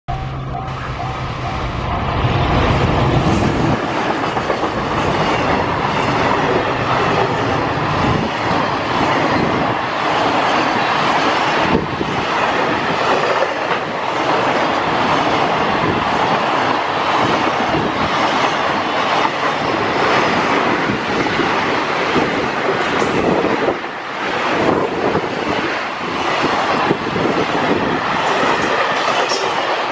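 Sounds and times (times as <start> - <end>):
electric locomotive humming: 0.1 - 29.9
train wheels clattering on rails: 0.5 - 29.9.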